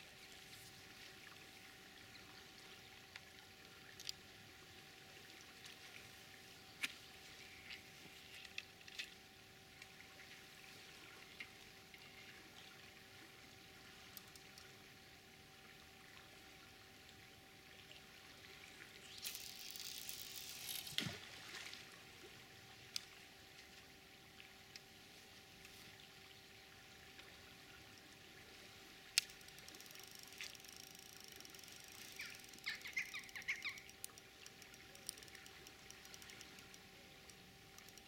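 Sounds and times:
small clicks: 14.1s - 14.7s, 19.1s - 21.1s, 29.1s - 38.0s
fishing line running off reel: 18.9s - 21.2s, 29.2s - 38.0s
river flowing: 28.6s - 38.0s.

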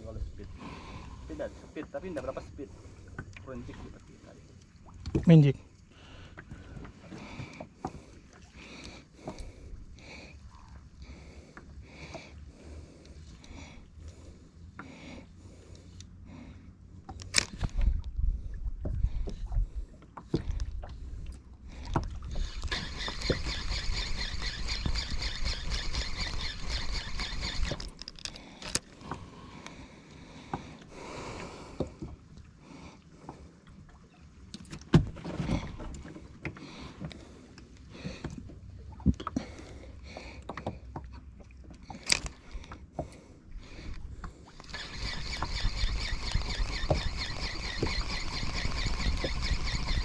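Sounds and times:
fishing reel whirring: 22.3s - 28.9s, 44.6s - 50.0s.

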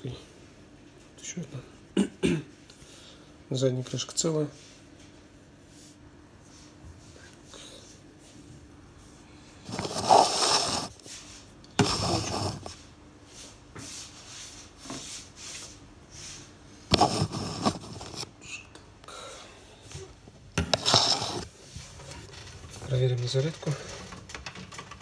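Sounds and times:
hands rubbing against a phone: 9.7s - 12.8s, 16.9s - 18.3s.

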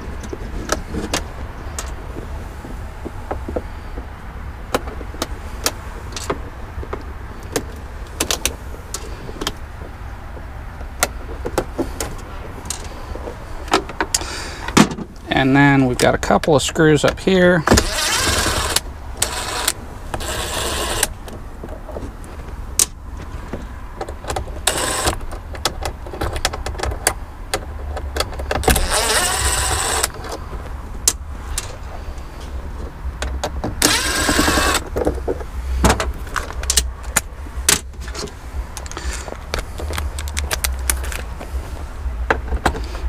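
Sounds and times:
cordless drill running: 17.8s - 21.1s, 28.8s - 30.1s, 33.8s - 34.8s.

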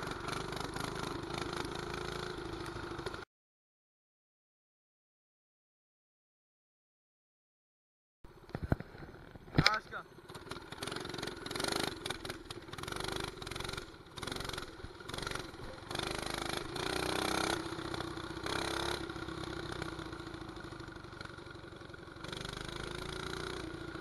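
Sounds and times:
small motorbike engine revving: 0.0s - 3.2s, 10.2s - 24.0s.

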